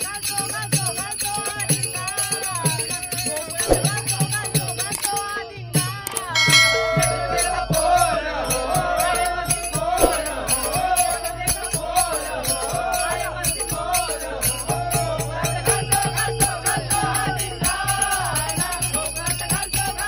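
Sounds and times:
men singing in chorus: 0:00.0 - 0:20.0
brass hand cymbals struck: 0:06.4 - 0:08.1.

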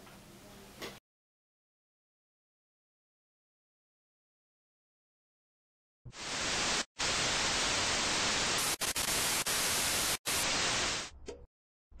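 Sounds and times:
television static hiss: 0:06.2 - 0:11.1.

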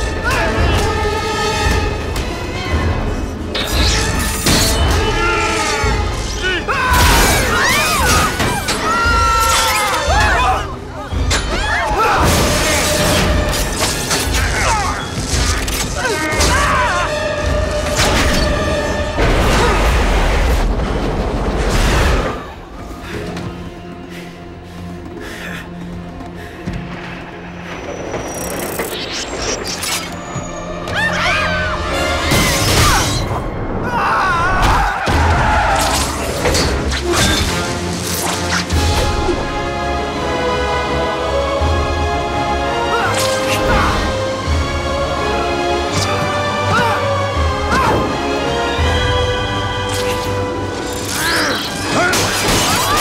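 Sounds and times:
dramatic film score: 0:00.0 - 0:53.0
orchestral music: 0:00.0 - 0:53.0
people screaming: 0:04.8 - 0:13.0, 0:14.2 - 0:17.2, 0:30.8 - 0:36.4, 0:51.0 - 0:53.0.

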